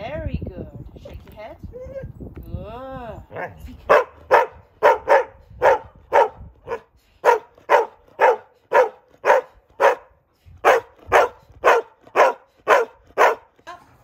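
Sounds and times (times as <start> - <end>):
dog barking: 3.4 - 13.5.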